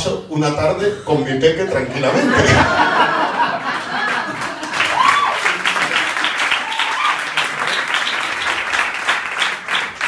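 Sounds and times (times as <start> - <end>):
audience applauding: 3.1 - 10.0
calls from crowd: 4.8 - 8.0.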